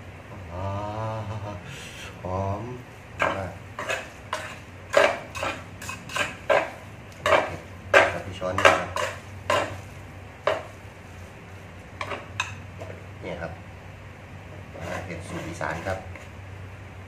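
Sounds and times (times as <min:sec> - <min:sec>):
utensils clinking against a pot: 0:03.2 - 0:09.8.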